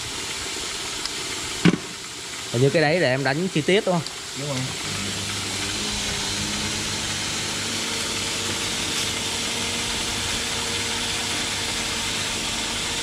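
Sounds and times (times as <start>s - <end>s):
rotary tool motor hum: 4.1s - 13.0s.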